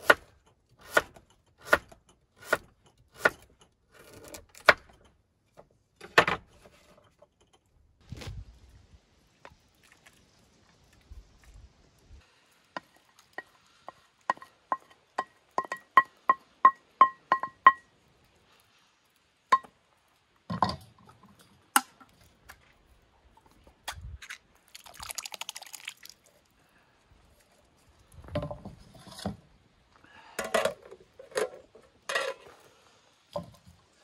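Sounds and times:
rush of liquid: 24.7 - 26.8.

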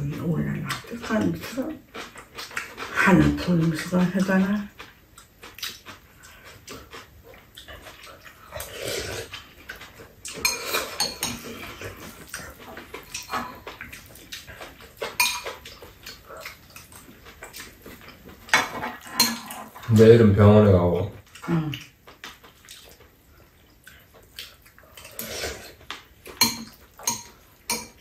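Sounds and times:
chewing: 0.0 - 20.1, 20.9 - 28.0
spoons clinking against bowls: 10.4 - 11.4, 13.1 - 13.7, 15.2 - 15.6, 26.4 - 28.0.

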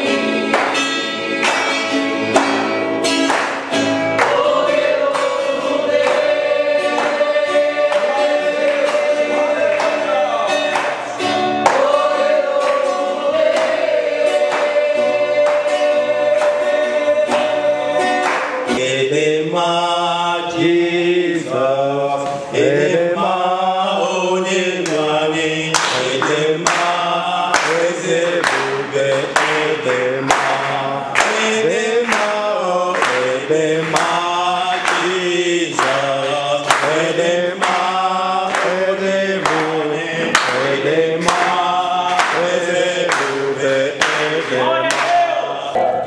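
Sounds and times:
hand claps: 0.0 - 18.9, 25.7 - 45.3
man singing into a microphone: 15.3 - 45.8.

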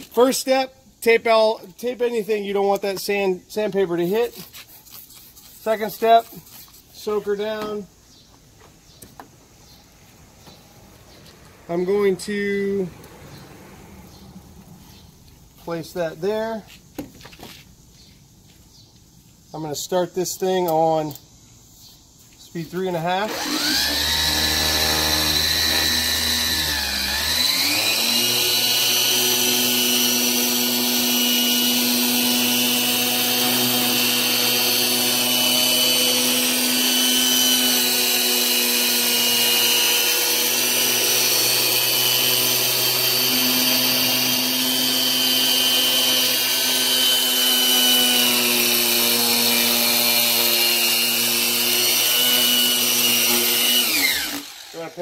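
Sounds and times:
electric sander motor whine: 23.2 - 55.0.

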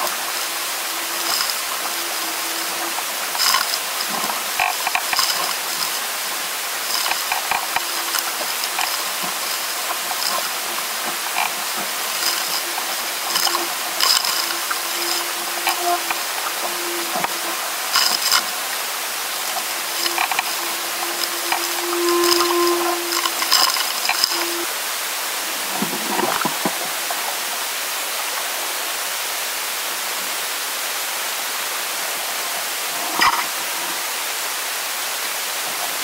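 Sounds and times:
steady hum: 0.0 - 26.7
water rushing past hull: 0.0 - 29.4.

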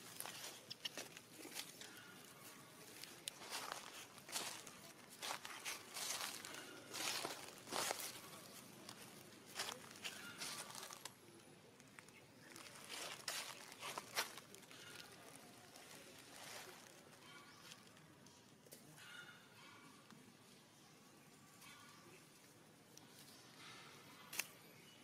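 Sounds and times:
dry leaves rustling and crackling: 0.0 - 11.2, 11.8 - 18.0
faint distant voices: 0.0 - 25.0.

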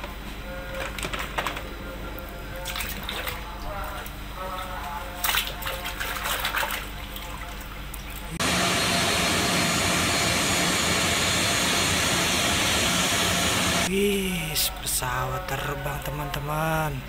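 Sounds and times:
steady hum: 8.3 - 15.7
jet engines rushing: 8.4 - 13.9.

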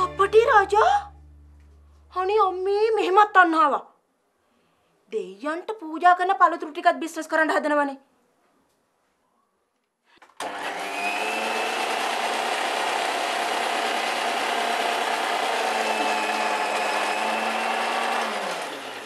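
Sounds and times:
blender motor running: 10.4 - 19.0.

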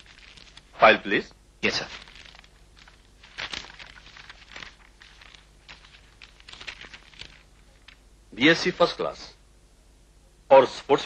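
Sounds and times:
paper pages rustling: 0.0 - 1.0, 1.6 - 8.9.

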